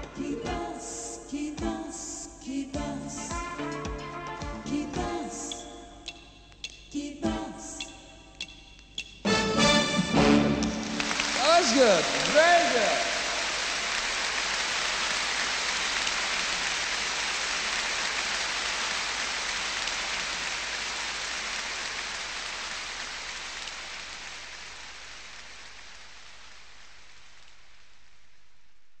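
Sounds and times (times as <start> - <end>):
faint steady hiss: 0.0 - 29.0
audience applause: 10.2 - 24.5.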